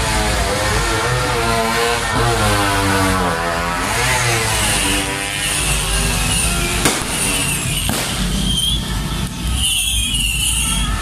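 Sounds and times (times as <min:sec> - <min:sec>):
motorcycle engines running: 0:00.0 - 0:11.0
firecracker bangs: 0:06.7 - 0:10.6.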